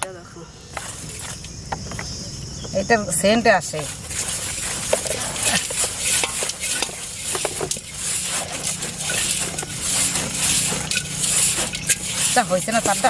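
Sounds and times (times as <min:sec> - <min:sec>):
hand mixing damp bran: 0:03.2 - 0:13.0.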